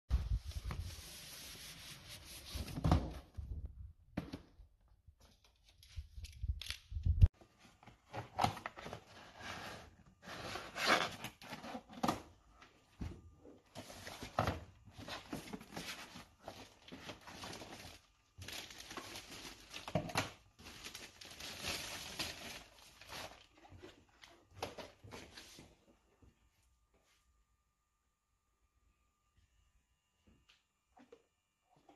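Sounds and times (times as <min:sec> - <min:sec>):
plastic wrapping crinkling: 0:15.4 - 0:24.2.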